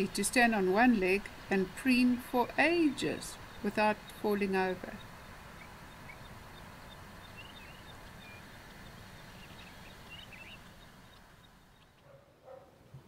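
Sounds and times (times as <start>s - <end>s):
faint bird chirps: 3.0s - 12.6s.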